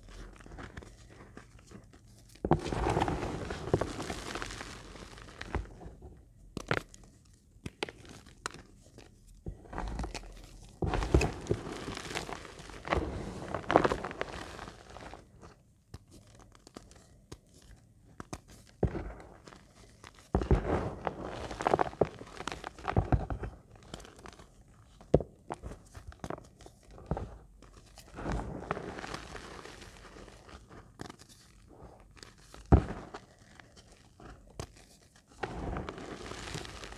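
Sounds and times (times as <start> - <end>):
chalk crunching in palms: 9.9 - 15.3, 27.6 - 36.9.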